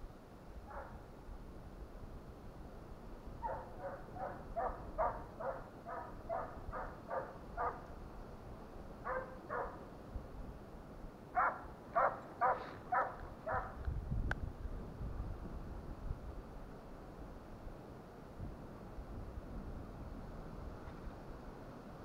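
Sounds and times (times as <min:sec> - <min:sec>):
hound baying: 0:03.4 - 0:07.8, 0:09.0 - 0:09.8, 0:11.4 - 0:13.8.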